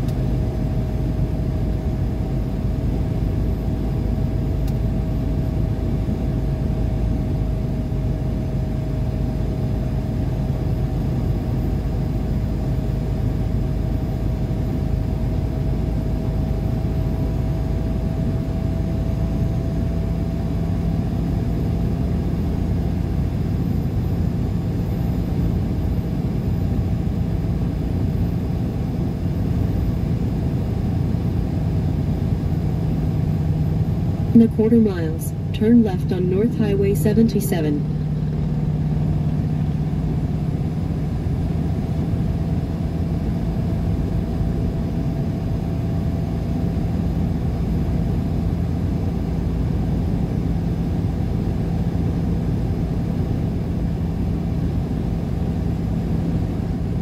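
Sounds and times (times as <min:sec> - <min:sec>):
faint whine: 0:00.0 - 0:57.0
car road and engine noise: 0:19.7 - 0:52.7.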